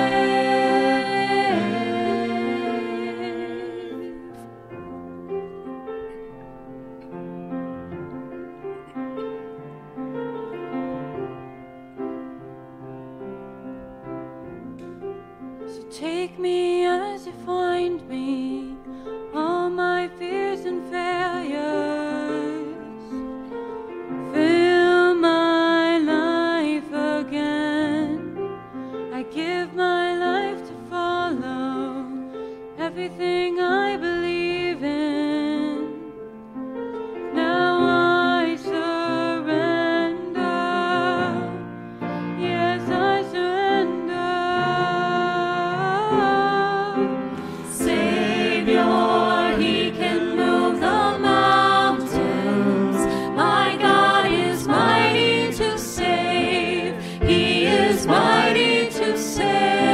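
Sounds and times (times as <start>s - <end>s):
piano accompaniment: 0.0s - 59.9s
woman singing: 15.7s - 23.1s, 24.4s - 28.3s, 29.1s - 36.1s, 37.3s - 41.6s, 42.4s - 47.1s
singer breathing: 47.3s - 47.8s, 53.0s - 53.4s, 57.0s - 57.2s.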